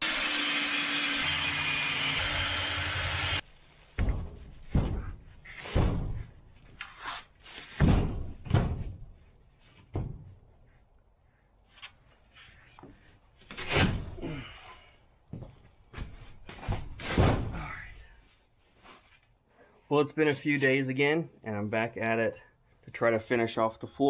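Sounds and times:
power drill driving screw: 0.0 - 3.4
wooden thumps and knocks: 3.9 - 6.8, 7.7 - 10.6.

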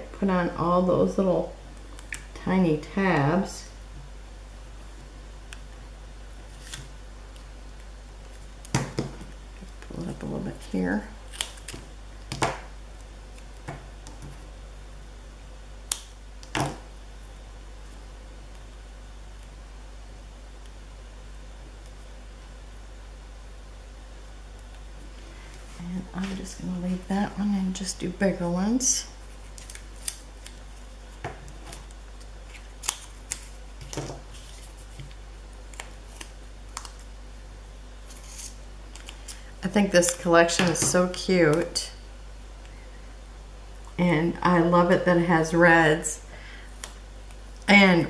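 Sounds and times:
low steady hum: 0.0 - 48.0
paper rustling: 31.5 - 37.0.

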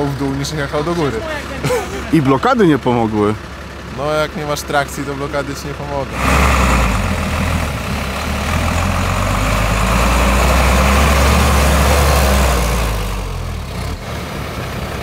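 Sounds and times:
heavy truck engine under load: 0.0 - 15.0.

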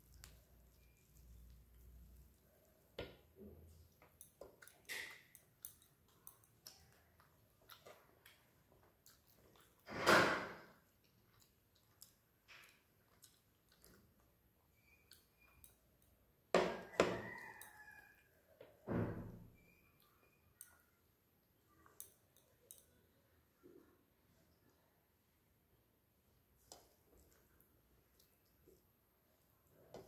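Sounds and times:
fingers squishing rice: 0.0 - 9.8
chewing: 0.0 - 9.9, 10.6 - 18.6, 19.6 - 24.9, 26.4 - 30.0.

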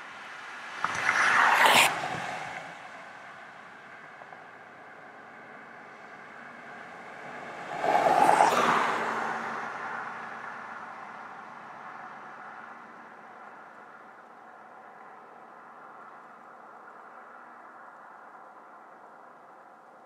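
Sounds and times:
loud rushing noise: 0.8 - 2.9.

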